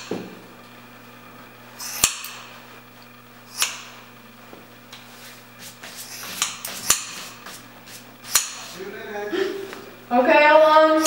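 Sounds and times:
low steady hum: 0.0s - 11.0s
scissors snipping hair: 8.3s - 8.6s.

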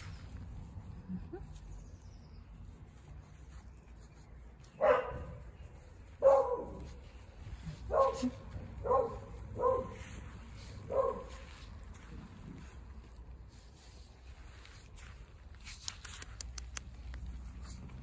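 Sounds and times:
dog barking: 4.8s - 5.4s, 6.2s - 6.8s, 7.9s - 10.0s, 10.9s - 11.4s.

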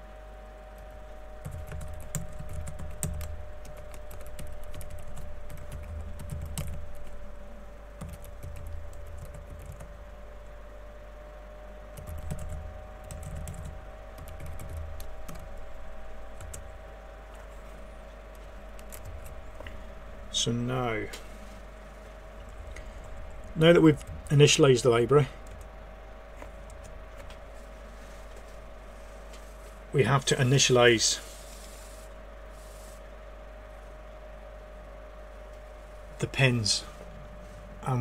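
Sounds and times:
typing on keyboard: 1.4s - 7.2s, 8.0s - 9.9s, 12.0s - 15.5s.

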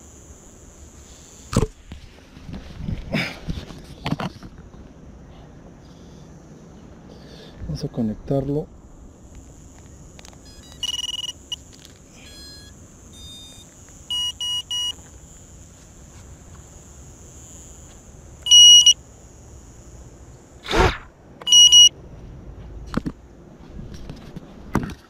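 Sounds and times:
faint high whine: 0.0s - 24.5s
electronic startup tones: 10.4s - 11.6s
quick electronic beeps: 10.4s - 11.6s, 12.2s - 15.0s, 18.4s - 19.0s, 21.5s - 21.9s.

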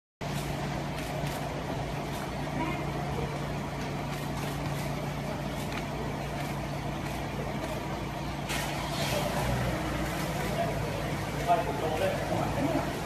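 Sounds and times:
low mechanical hum: 0.2s - 13.0s.

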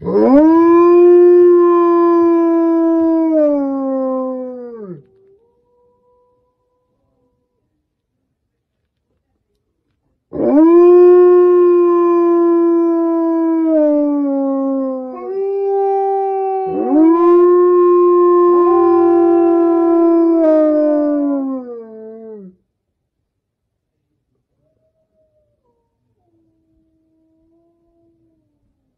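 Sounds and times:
wolves howling: 0.0s - 7.2s, 10.4s - 22.5s.

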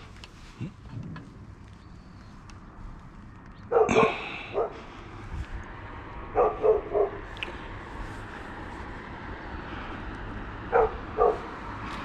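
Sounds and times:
dog barking: 3.7s - 4.8s, 6.3s - 7.3s, 10.7s - 11.5s.

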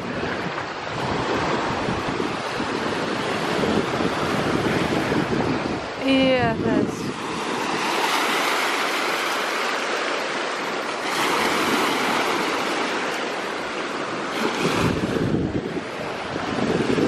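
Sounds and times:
small waves washing over rocks: 6.9s - 17.0s.

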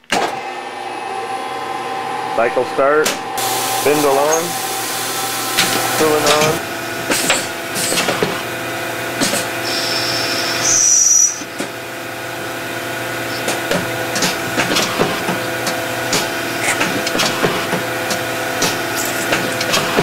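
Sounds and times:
lathe motor and spindle hum: 0.3s - 20.0s
high whine rising in pitch: 0.4s - 7.0s.

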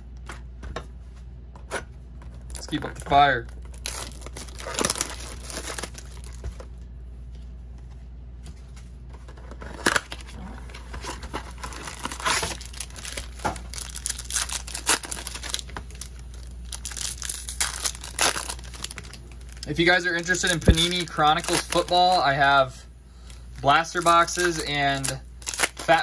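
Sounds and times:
card pack wrappers crinkling and tearing: 2.4s - 6.7s, 9.3s - 22.6s, 23.2s - 26.0s.

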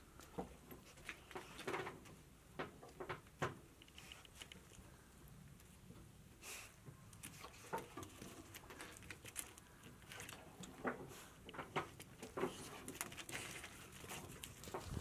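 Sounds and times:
dog paws on gravelly dirt: 13.5s - 15.0s.

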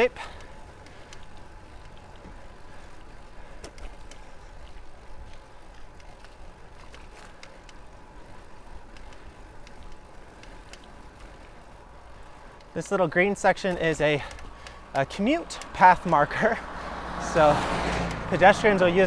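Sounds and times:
bike tyres rumbling on pavement: 0.0s - 19.0s
light sharp clicks: 13.6s - 16.2s.

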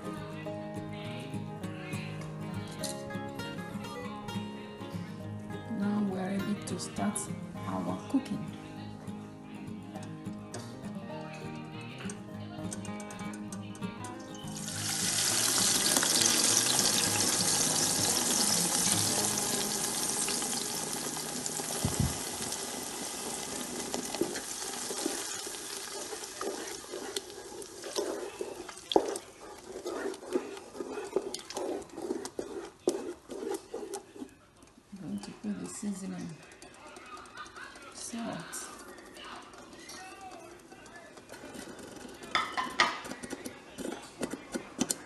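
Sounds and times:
loud sizzle: 14.2s - 28.2s
wooden spoon scraping a pot: 14.4s - 34.4s, 41.2s - 45.0s.

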